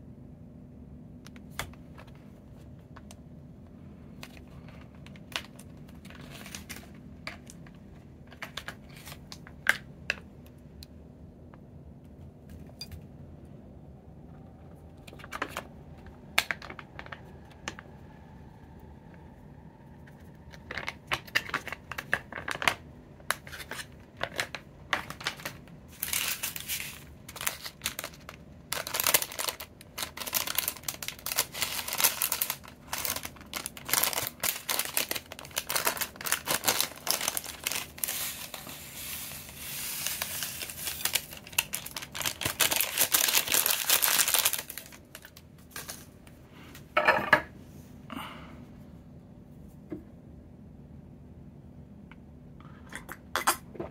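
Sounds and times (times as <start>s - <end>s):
plastic packet crinkling: 4.2s - 10.2s, 20.2s - 46.1s.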